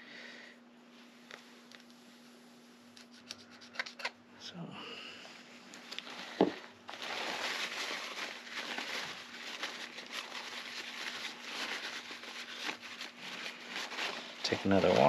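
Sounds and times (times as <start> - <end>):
paper towel crinkling: 5.9 - 15.0.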